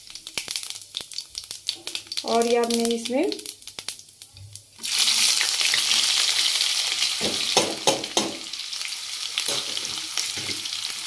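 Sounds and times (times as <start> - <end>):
onions sizzling in hot oil: 0.0 - 11.0
utensil knocking against pan: 7.2 - 8.5.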